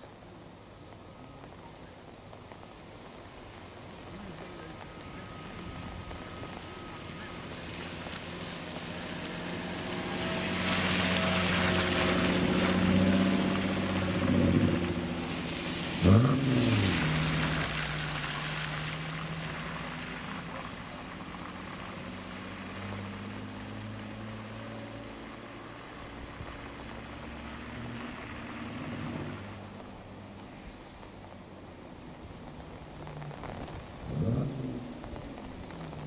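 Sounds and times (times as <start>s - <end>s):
car engines running: 0.0s - 36.0s
tyres hissing through water: 2.6s - 31.0s
engine blipped: 3.9s - 15.4s.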